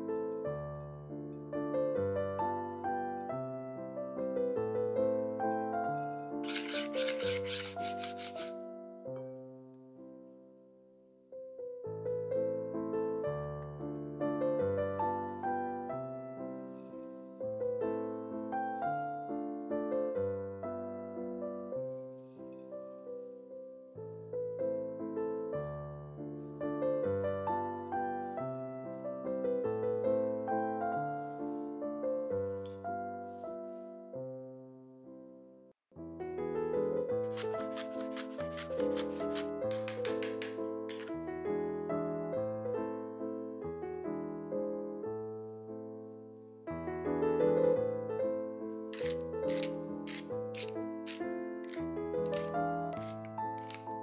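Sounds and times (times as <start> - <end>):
background piano music: 0.0 - 54.0
mandoline slicer cutting onion: 6.4 - 8.6, 37.2 - 41.2, 49.0 - 54.0.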